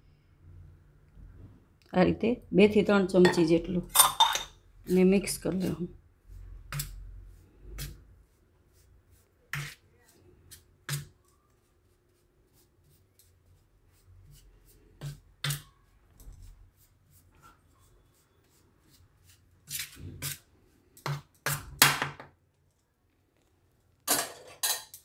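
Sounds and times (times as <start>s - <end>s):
spoon scraping steel plate: 3.2s - 4.6s.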